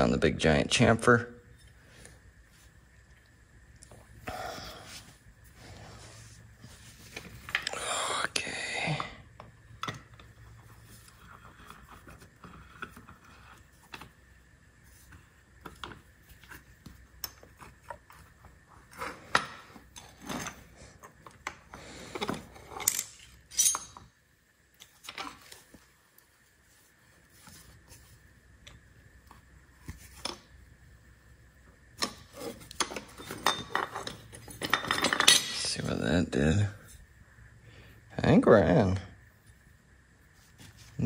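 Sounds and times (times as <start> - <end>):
metallic clinks and rattles: 22.7 - 24.0.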